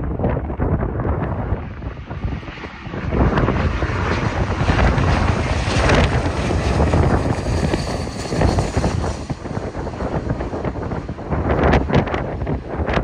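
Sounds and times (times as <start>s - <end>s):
jet engines rumbling: 0.0s - 13.0s
wind buffeting microphone: 0.0s - 13.0s.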